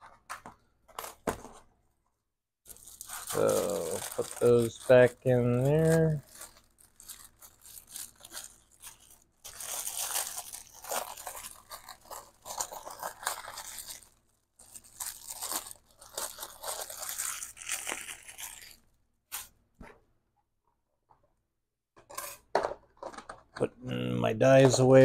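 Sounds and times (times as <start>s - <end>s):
plastic envelopes crinkling: 2.7s - 18.9s.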